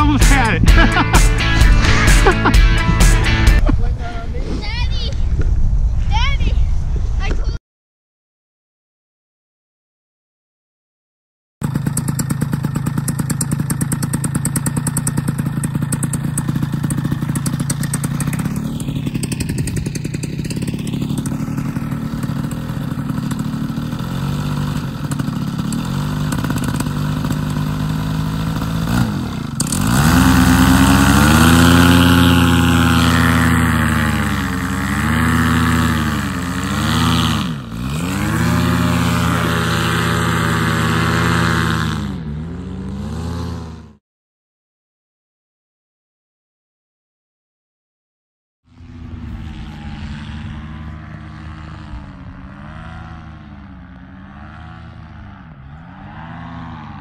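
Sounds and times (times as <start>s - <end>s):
paramotor engine idling and revving: 0.0s - 3.6s, 11.6s - 44.0s, 48.7s - 57.0s.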